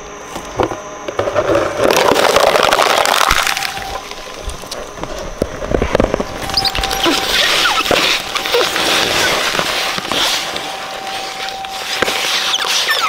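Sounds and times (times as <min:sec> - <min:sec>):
shredder crunching plastic: 0:01.2 - 0:13.0
plastic cracking and snapping: 0:01.8 - 0:10.7
short squeaks: 0:06.4 - 0:13.0.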